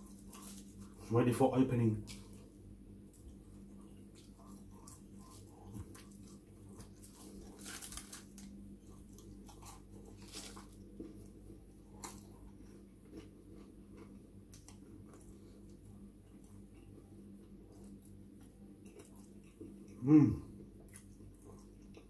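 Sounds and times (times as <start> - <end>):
paper and foil wrapping crackling: 0.0 - 1.0, 6.8 - 8.6, 9.7 - 10.8
faint chewing: 0.0 - 1.1, 2.0 - 22.0
faint low hum: 0.0 - 22.0.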